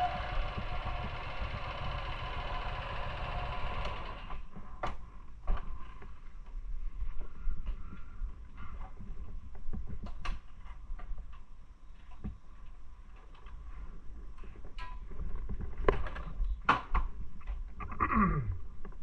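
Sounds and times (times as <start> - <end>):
clicks and knocks handling motorcycle: 14.4 - 17.6.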